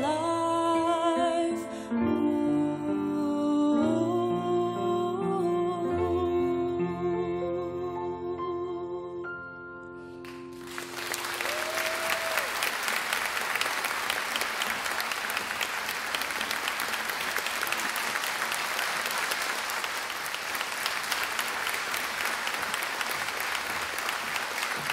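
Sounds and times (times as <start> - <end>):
audience applause: 10.3 - 24.9.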